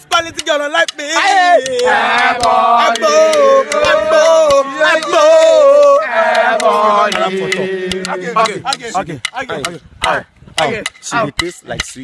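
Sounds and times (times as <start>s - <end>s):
men chanting in unison: 0.1s - 11.4s.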